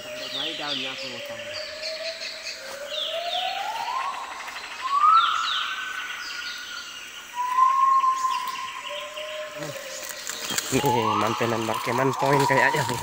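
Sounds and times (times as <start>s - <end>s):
bird chirps: 0.0s - 13.0s
person whistling long sliding notes: 7.4s - 8.8s, 10.6s - 13.0s.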